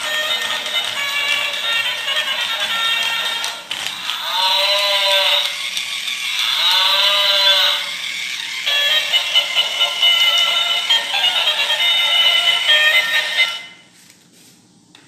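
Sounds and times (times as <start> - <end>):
toy gear ratcheting: 0.0 - 11.2
toy animal calls from speaker: 0.0 - 13.7
toy music: 0.0 - 13.8.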